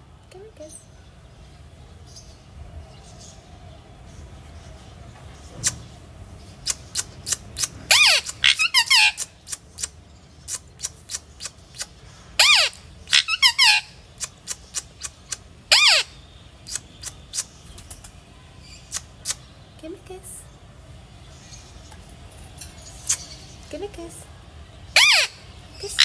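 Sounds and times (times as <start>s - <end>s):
parakeet shrill calls: 7.6s - 9.4s, 12.4s - 14.0s, 15.7s - 17.1s, 24.9s - 26.0s.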